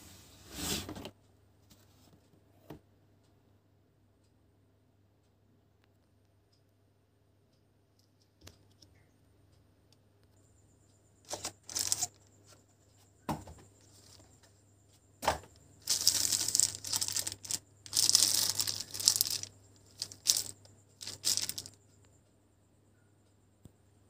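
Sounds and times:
plastic sleeve crinkling: 0:11.3 - 0:12.2, 0:15.8 - 0:21.8.

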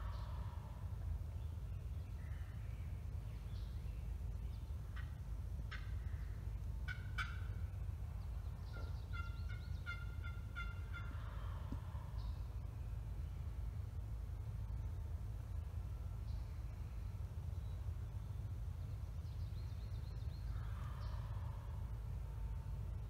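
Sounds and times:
low rumble: 0:00.0 - 0:23.0
turkey call clucks: 0:05.7 - 0:06.0, 0:06.8 - 0:07.6, 0:08.7 - 0:12.0
turkey call yelps: 0:05.7 - 0:06.0, 0:06.9 - 0:07.6, 0:08.7 - 0:11.9.

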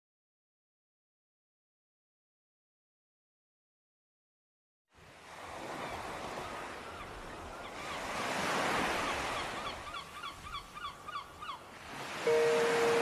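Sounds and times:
ocean surf washing in: 0:11.8 - 0:13.0.

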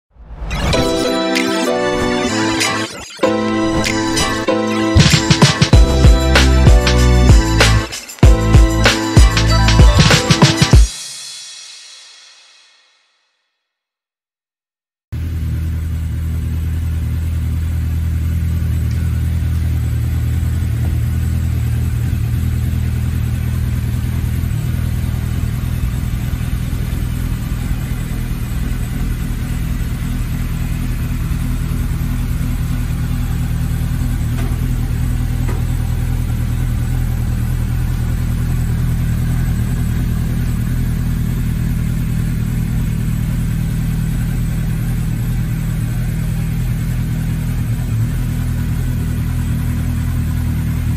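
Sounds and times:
motorcycle engine idling: 0:15.2 - 0:50.9.

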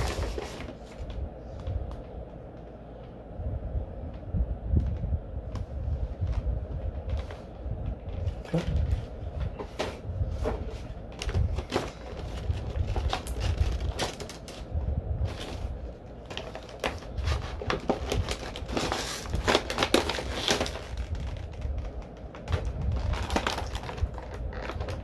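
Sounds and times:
cardboard and plastic crinkling: 0:00.0 - 0:01.2, 0:08.0 - 0:25.0.

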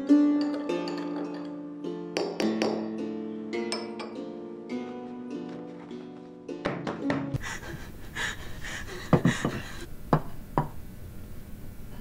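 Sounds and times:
knocks and taps on desk: 0:06.6 - 0:07.4.

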